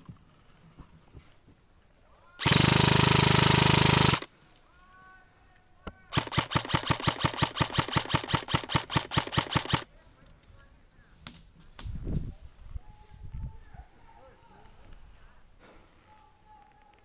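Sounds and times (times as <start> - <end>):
airsoft rifle firing: 2.4 - 4.3, 6.1 - 9.9.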